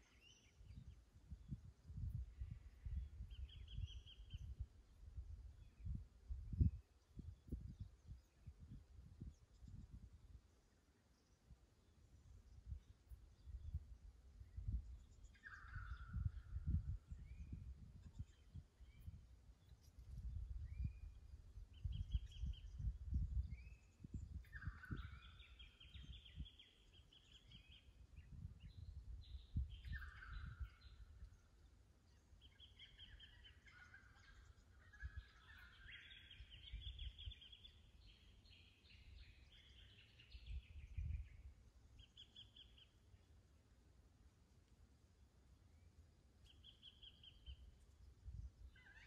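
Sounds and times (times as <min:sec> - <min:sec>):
wind buffeting microphone: 0:00.6 - 0:10.2, 0:12.5 - 0:31.4, 0:34.9 - 0:41.6.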